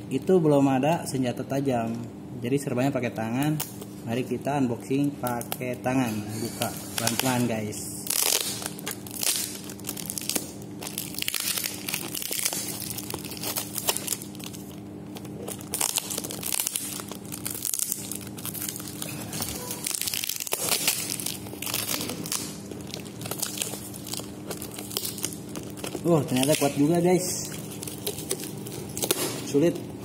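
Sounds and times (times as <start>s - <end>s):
faint steady hum: 0.0s - 30.0s
packing tape and cardboard tearing: 6.6s - 29.6s.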